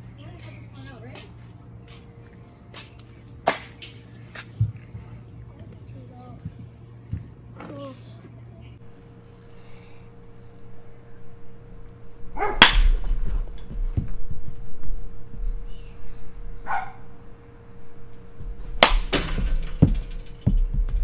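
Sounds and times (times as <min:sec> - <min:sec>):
metal bat hitting ball: 0:12.4 - 0:13.2, 0:18.7 - 0:20.7.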